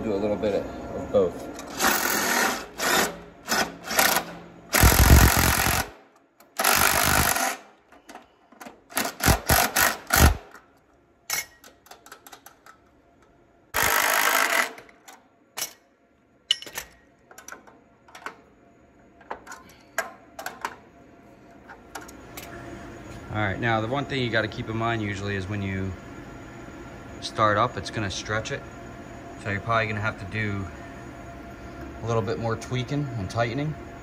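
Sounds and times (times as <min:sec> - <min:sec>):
power drill turning a screw: 0:01.7 - 0:05.9, 0:06.6 - 0:07.6, 0:08.9 - 0:10.4, 0:13.8 - 0:14.8
tool clatter: 0:16.5 - 0:18.4.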